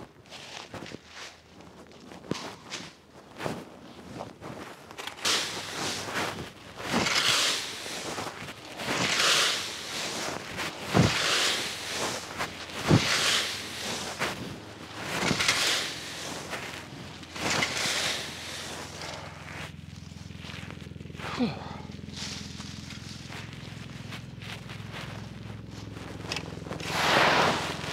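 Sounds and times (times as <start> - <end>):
rake scraping dry leaves: 0.3 - 27.9
rake knocking the ground: 2.2 - 3.0, 4.9 - 20.6, 26.0 - 27.9.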